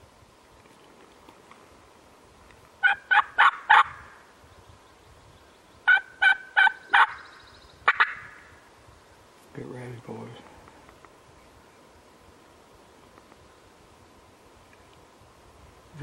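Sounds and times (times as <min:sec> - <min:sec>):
wild turkey yelping: 0:02.8 - 0:04.2, 0:05.8 - 0:08.5.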